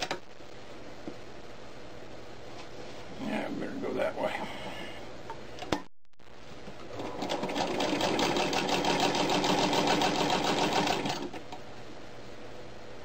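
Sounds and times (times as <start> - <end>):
sewing machine stitching: 6.9 - 11.5.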